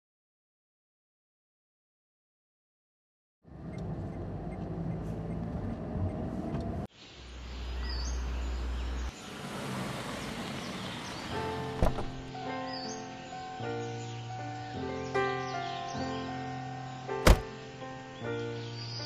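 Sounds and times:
road noise: 3.4s - 19.0s
car engine running: 3.5s - 6.9s, 7.6s - 12.3s
music: 11.3s - 19.0s.

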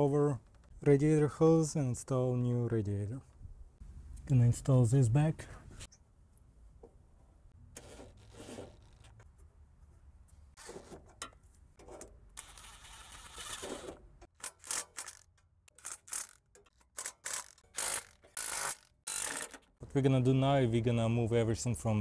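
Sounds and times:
part scraping and clicking: 10.7s - 19.7s.

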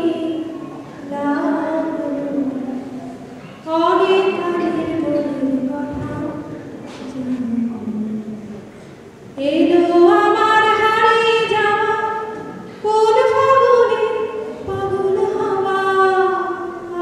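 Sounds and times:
woman singing slowly: 3.7s - 8.5s.

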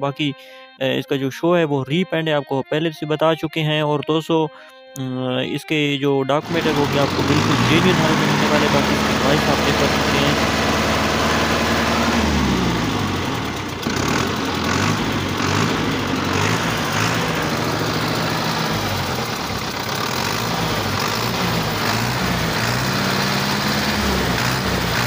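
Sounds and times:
tractor diesel engine revving: 6.4s - 25.0s.

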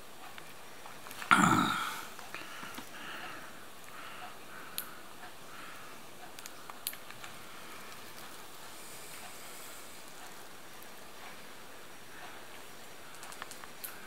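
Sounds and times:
faint steady hiss: 0.0s - 14.0s
light clicks and taps: 6.2s - 9.4s, 12.2s - 14.0s.

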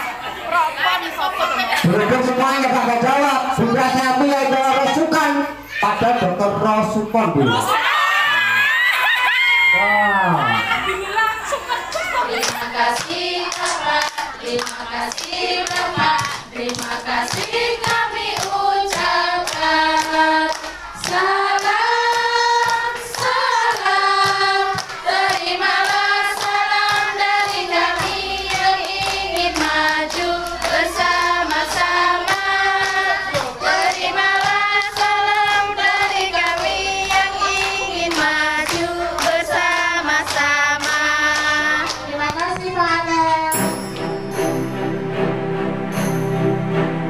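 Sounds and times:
children clapping: 11.7s - 42.8s
children singing in unison: 12.2s - 42.2s.

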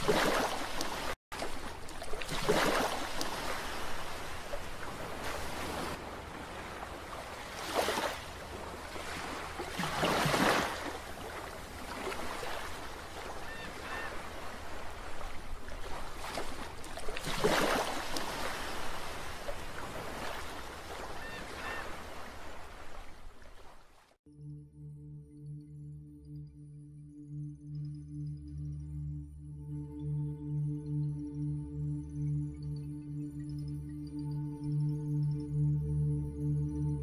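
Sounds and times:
ocean surf washing on beach: 0.0s - 23.9s
waves breaking: 0.0s - 24.2s.

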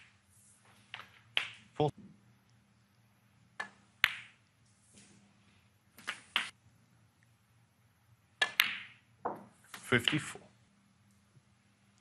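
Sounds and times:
snooker balls clicking: 0.8s - 1.8s, 3.5s - 4.6s, 6.0s - 6.6s, 8.4s - 10.5s
cue tip hitting ball: 8.4s - 9.6s.

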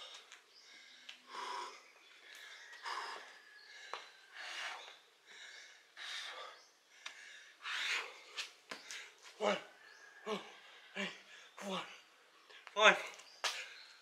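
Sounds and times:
person breathing hard: 0.0s - 9.2s.

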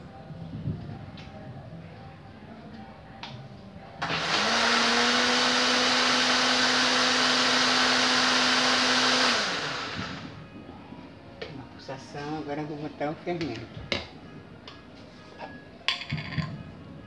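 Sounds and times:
electric blender running: 4.0s - 10.3s.

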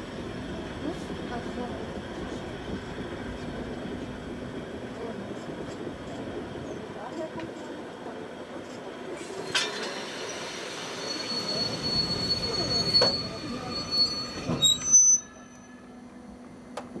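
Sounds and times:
train wheels squealing: 9.2s - 16.0s.

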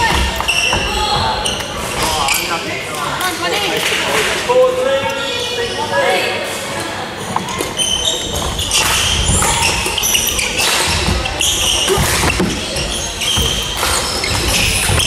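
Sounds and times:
shoes squeaking: 0.0s - 2.6s, 6.7s - 15.0s.

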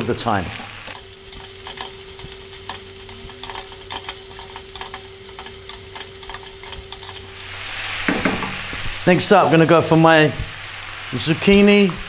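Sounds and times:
vegetables sizzling in oil: 0.0s - 12.0s
spatula knocking and scraping pan: 0.9s - 7.3s, 8.0s - 8.8s.

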